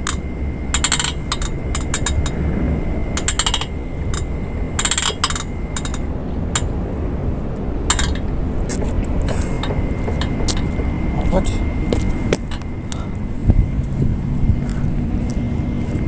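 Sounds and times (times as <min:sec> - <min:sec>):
exercise machine metal clinks and rattles: 0:00.0 - 0:02.4, 0:03.2 - 0:06.7, 0:07.9 - 0:11.6
low background rumble: 0:00.0 - 0:16.0.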